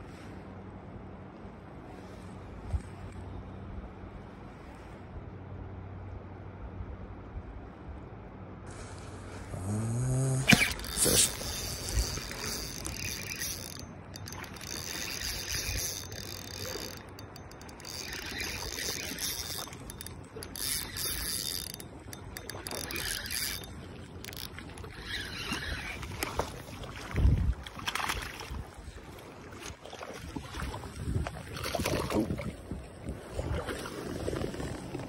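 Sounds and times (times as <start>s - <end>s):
fishing reel whirring and clicking: 9.6s - 26.6s.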